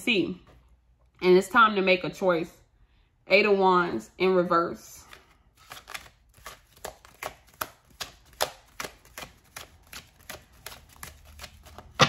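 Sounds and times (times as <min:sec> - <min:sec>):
cards being shuffled: 0:05.0 - 0:12.0.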